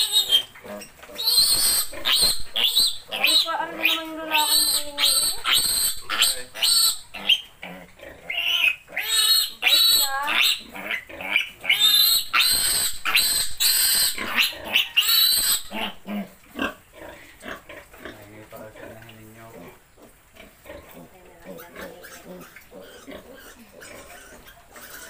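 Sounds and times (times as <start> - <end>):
piglet squealing: 0.0 - 7.5, 8.3 - 16.3, 21.6 - 25.0.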